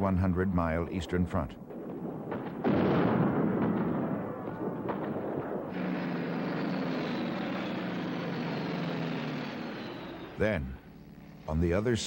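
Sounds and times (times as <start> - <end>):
rumble of a blast: 1.7 - 11.5
faint high whine falling: 5.7 - 12.0
piston aircraft engines droning: 5.7 - 12.0.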